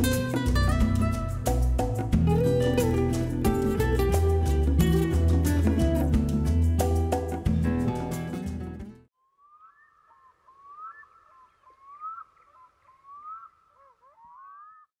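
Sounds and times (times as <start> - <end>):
background music: 0.0 - 9.1
bird whistling: 9.4 - 14.9.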